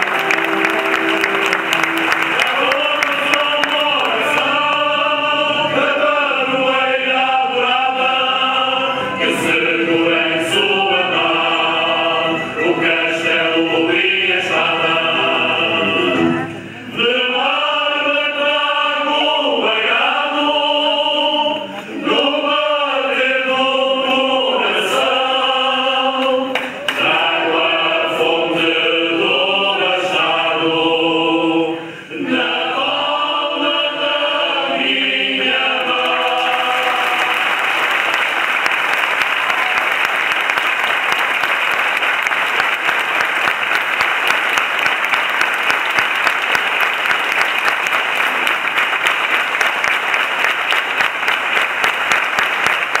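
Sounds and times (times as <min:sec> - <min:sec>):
audience applause: 0:00.0 - 0:05.1, 0:26.5 - 0:27.7, 0:35.7 - 0:53.0
group singing in chorus: 0:00.0 - 0:39.3.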